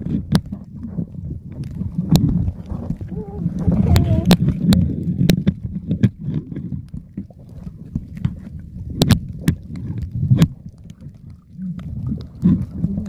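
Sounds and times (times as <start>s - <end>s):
underwater water sloshing: 0.0s - 13.0s.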